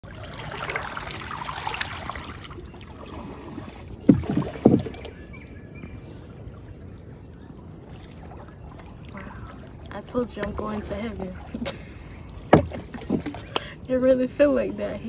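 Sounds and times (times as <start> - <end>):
dull thumps on wooden boat: 4.0 - 5.1, 12.4 - 13.6.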